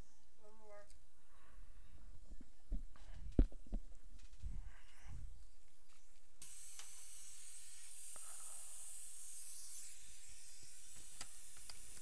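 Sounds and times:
steady high-pitched hiss: 4.2 - 12.0.

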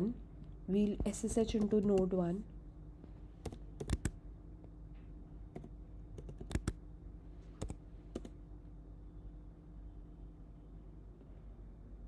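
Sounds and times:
faint steady hum: 0.0 - 12.0
keyboard typing clicks: 3.4 - 4.2, 5.5 - 6.8, 7.6 - 8.4.

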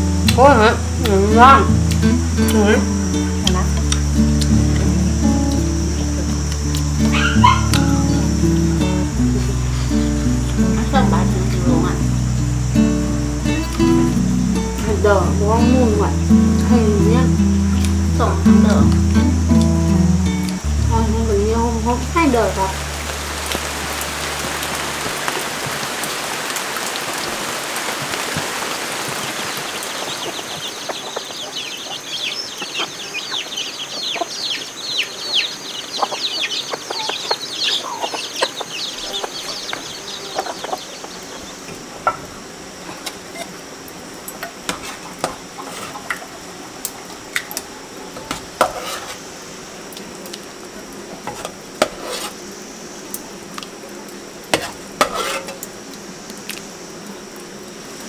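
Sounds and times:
birds chirping: 0.0 - 26.3, 28.6 - 43.5
rain hissing: 0.0 - 58.0.

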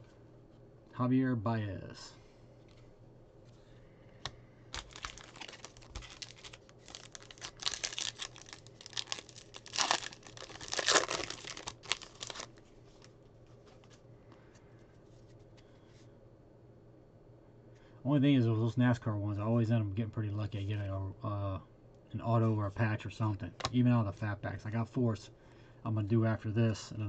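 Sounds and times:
foil wrapper crinkling and tearing: 4.7 - 13.1.

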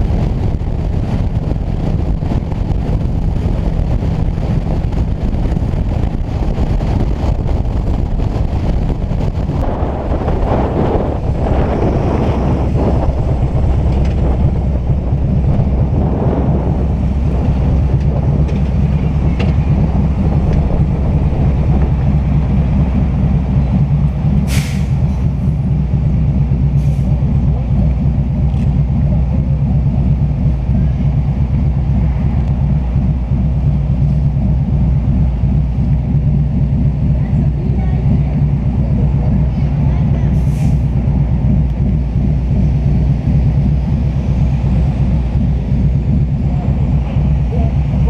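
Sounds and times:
motorcycle engines idling: 0.0 - 48.0
short sharp hiss: 24.5 - 24.9.

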